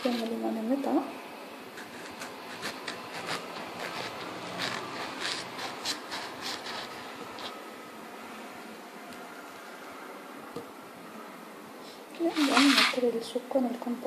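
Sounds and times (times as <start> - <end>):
knife cutting lemon: 1.8 - 7.6.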